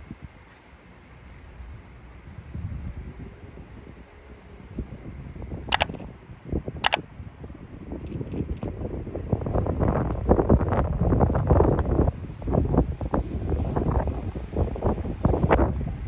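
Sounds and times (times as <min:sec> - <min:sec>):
sharp clicks: 0:05.7 - 0:06.0.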